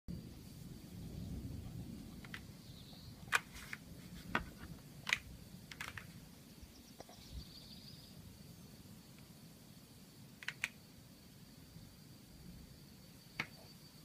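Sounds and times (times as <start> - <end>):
sharp clicks: 10.4 - 10.8, 13.4 - 13.6.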